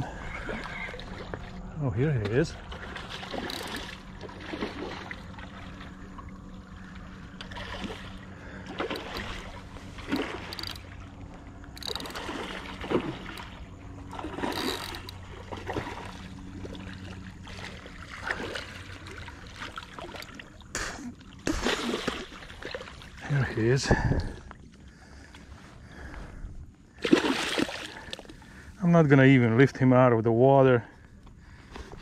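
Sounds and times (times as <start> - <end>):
low hum: 0.0 - 32.0
fish splashing in water: 2.5 - 11.0, 11.7 - 23.3, 27.0 - 28.4.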